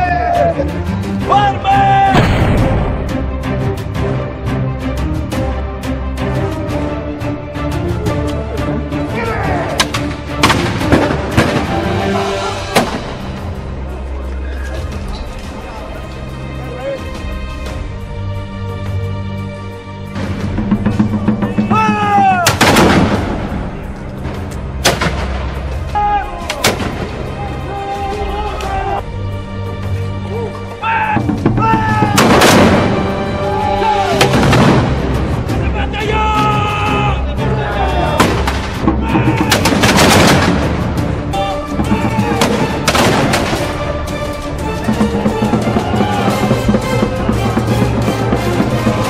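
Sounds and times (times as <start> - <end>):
background music: 0.0 - 49.0
musket shots: 22.4 - 23.4, 32.2 - 33.0, 39.5 - 40.8, 42.4 - 43.8.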